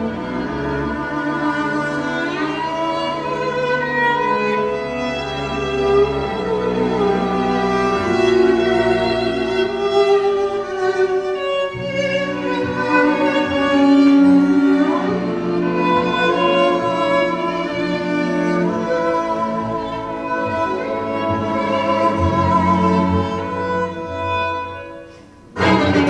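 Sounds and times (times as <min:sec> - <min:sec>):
classical string music: 0:00.0 - 0:26.0.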